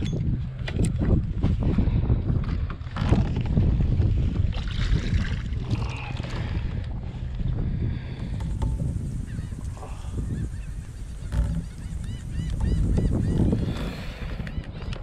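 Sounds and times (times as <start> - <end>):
wind rumble on microphone: 0.0 - 15.0
fishing gear knocking against kayak: 8.1 - 9.4, 11.2 - 15.0.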